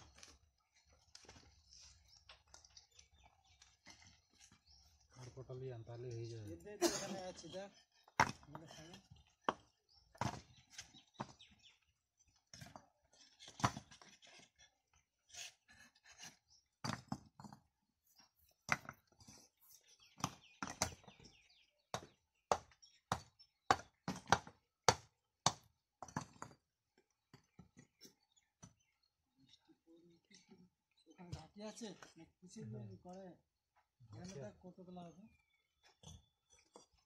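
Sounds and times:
bricks knocking and clinking: 8.1 - 11.6, 12.5 - 14.6, 16.8 - 17.8, 18.7 - 19.4, 20.2 - 21.3, 21.9 - 28.8.

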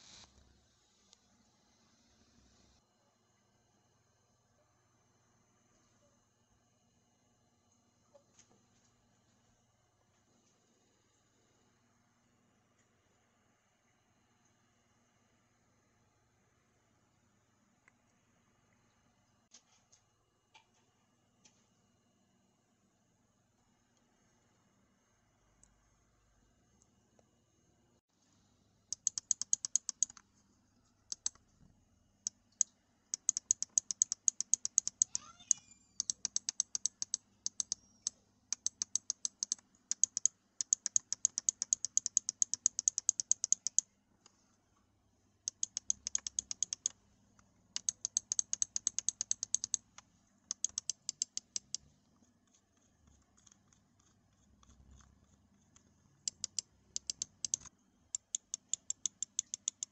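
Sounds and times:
mouse scroll wheel clicking: 28.9 - 30.2, 31.1 - 31.4, 32.2 - 43.9, 45.4 - 47.0, 47.7 - 51.8, 52.4 - 59.9.

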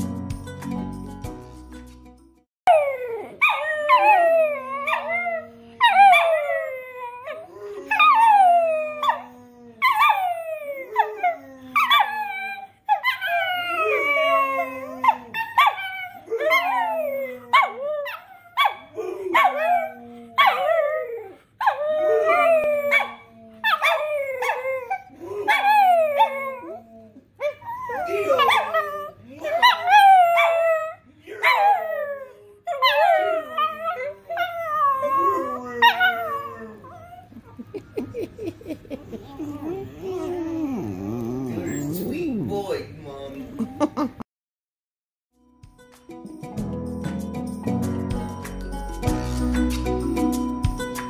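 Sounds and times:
dog howling: 2.7 - 38.3, 39.1 - 42.2.

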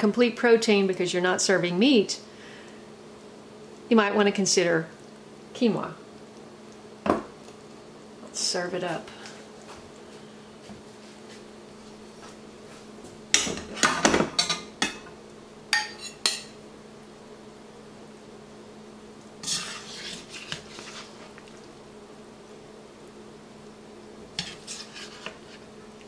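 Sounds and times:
metal spoon clinking on bowl: 15.8 - 16.6.

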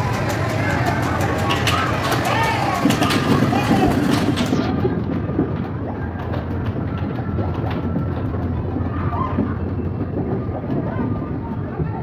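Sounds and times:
air blower rumble: 0.0 - 4.9
plastic balls knocking: 0.0 - 10.9.

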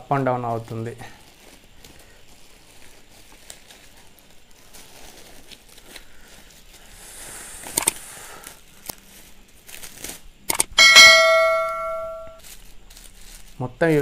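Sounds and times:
plastic bag crinkling: 0.0 - 7.0, 8.4 - 10.5, 12.4 - 14.0
sharp clicks: 7.7 - 8.0, 10.5 - 10.8.

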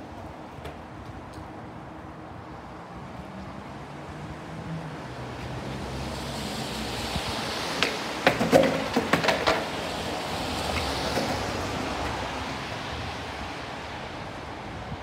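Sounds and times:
skateboard wheels rolling: 0.0 - 1.5, 5.4 - 14.7
skateboard clacking on paving: 7.6 - 12.3.

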